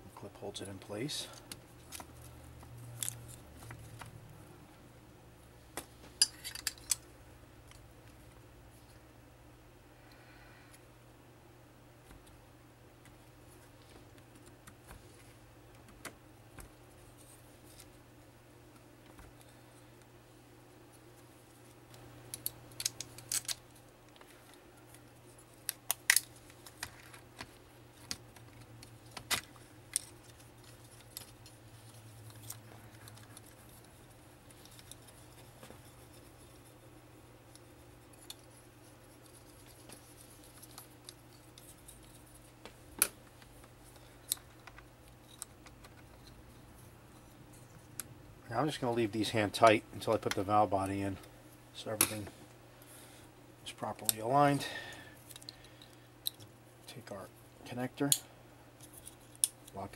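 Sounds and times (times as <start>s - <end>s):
faint steady hum: 0.0s - 59.9s
clicks and rattles of parts handled: 5.7s - 8.3s, 21.5s - 36.8s, 37.5s - 48.1s, 54.0s - 57.0s, 58.8s - 59.9s.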